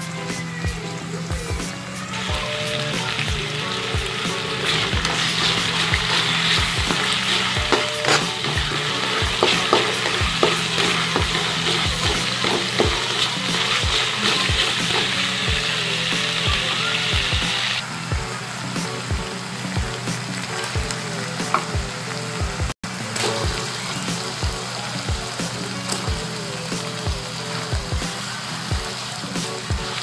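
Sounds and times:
onions sizzling in oil: 0:00.0 - 0:30.0
spatula scraping wok: 0:02.2 - 0:17.6.

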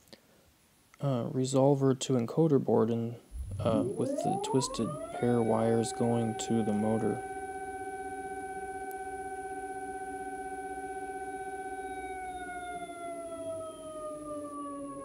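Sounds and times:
electric motor whine: 0:03.4 - 0:15.0.

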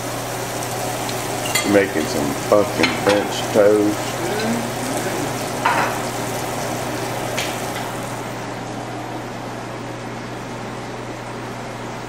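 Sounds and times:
food sizzling in a frying pan: 0:00.0 - 0:08.5.

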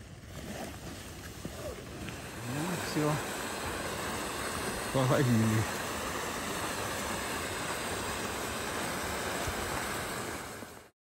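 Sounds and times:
sled scraping over snow: 0:00.0 - 0:03.2.

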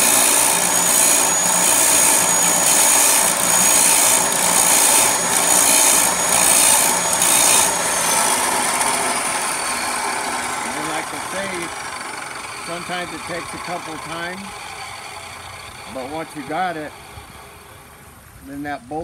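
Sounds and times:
chop saw grinding metal rod: 0:00.0 - 0:11.8, 0:15.8 - 0:17.4
saw motor whine winding down: 0:00.0 - 0:18.4.

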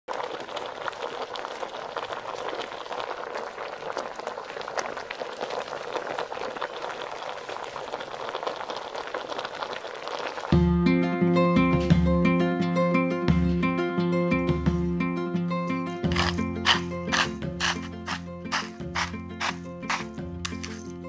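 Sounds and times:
soup boiling with bubbles bursting: 0:00.1 - 0:10.6, 0:16.0 - 0:20.7
plucked guitar music: 0:10.6 - 0:21.0.

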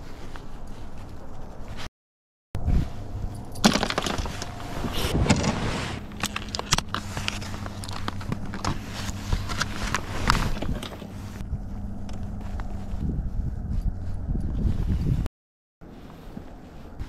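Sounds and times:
plastic bag crinkling: 0:06.1 - 0:10.9.

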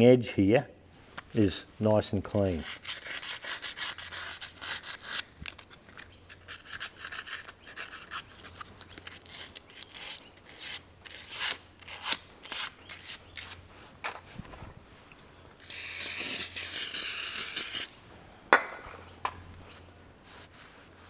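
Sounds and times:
sandpaper rasping on metal: 0:02.5 - 0:05.2, 0:06.4 - 0:13.6, 0:15.6 - 0:17.9.

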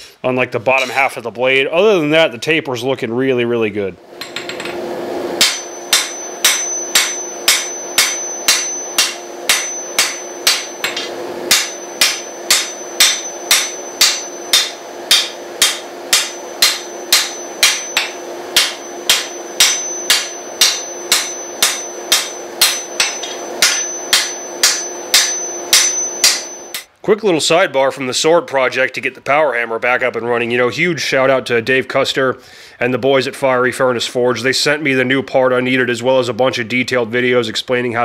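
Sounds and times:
low hum: 0:04.0 - 0:26.9
hammer striking metal on anvil: 0:04.2 - 0:04.8, 0:05.4 - 0:26.9.

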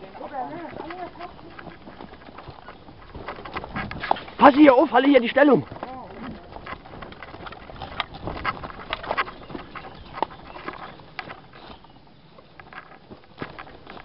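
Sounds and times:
plants brushing: 0:03.1 - 0:06.3.

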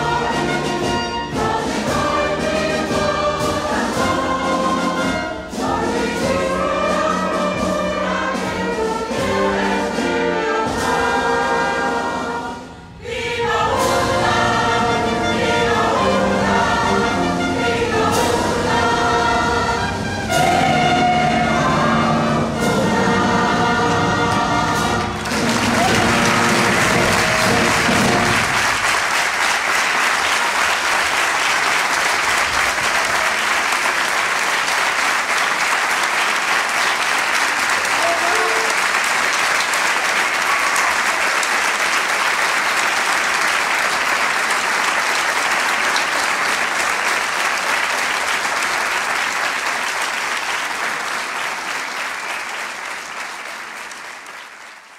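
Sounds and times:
wind band and choir chord: 0:00.0 - 0:28.7
audience applause: 0:24.3 - 0:54.9.

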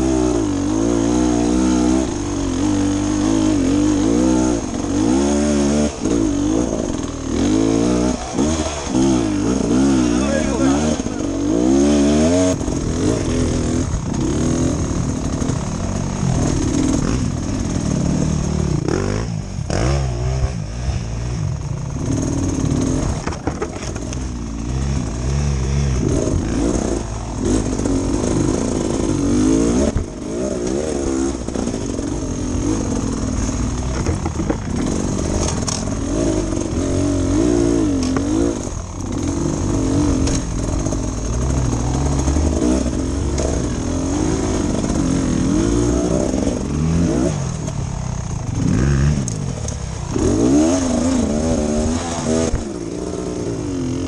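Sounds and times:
motorbike engine revving: 0:00.0 - 0:54.0
bike knocking on rocks: 0:23.2 - 0:24.2, 0:33.8 - 0:35.9.

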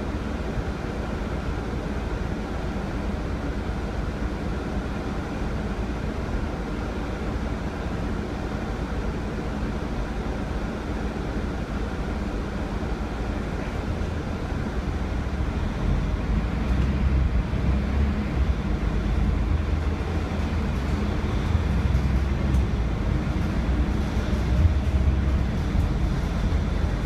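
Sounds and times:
bus diesel engine rumble: 0:00.0 - 0:27.0
road noise: 0:00.0 - 0:27.0.

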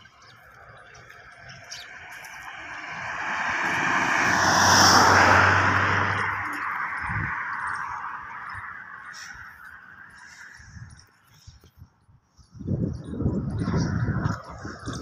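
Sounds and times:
car passing by: 0:01.3 - 0:10.6.

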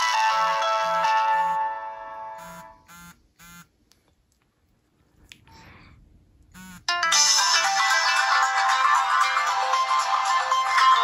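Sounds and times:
phone ringtone: 0:00.0 - 0:03.6.

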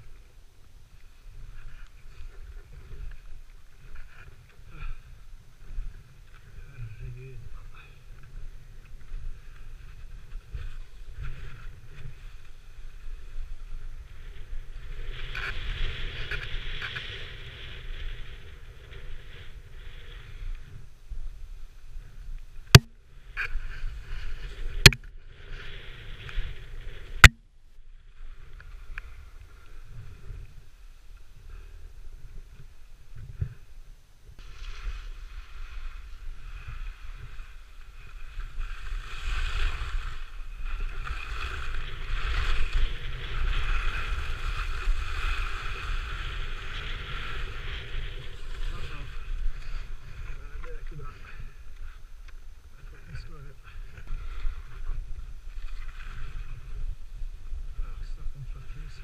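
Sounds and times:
skis scraping over snow: 0:05.8 - 0:20.8, 0:21.4 - 0:27.2, 0:34.4 - 0:52.1.

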